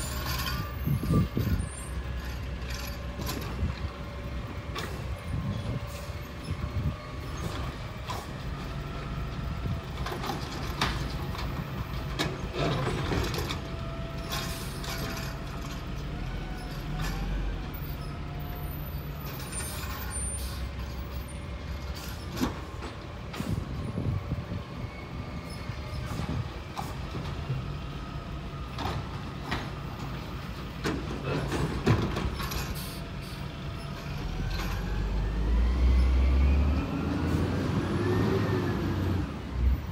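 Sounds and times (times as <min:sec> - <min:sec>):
carts clanking and knocking: 0:00.0 - 0:04.0, 0:09.9 - 0:16.0, 0:28.7 - 0:33.0.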